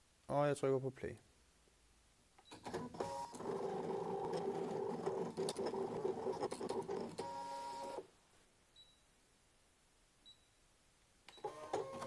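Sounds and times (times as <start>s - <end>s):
cutting machine motors whirring: 11.4s - 12.0s.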